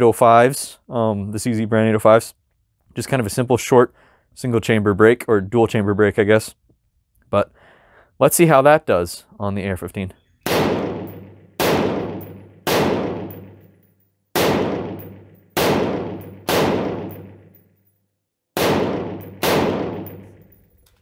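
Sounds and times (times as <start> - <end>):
rifle shots echoing: 10.4 - 13.7, 14.4 - 17.6, 18.6 - 20.7.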